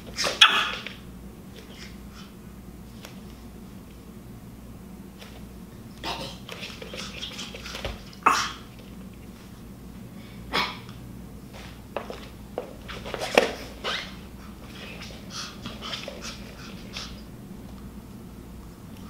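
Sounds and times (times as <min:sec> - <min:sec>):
small dog yapping: 0:00.1 - 0:01.0, 0:13.6 - 0:14.2.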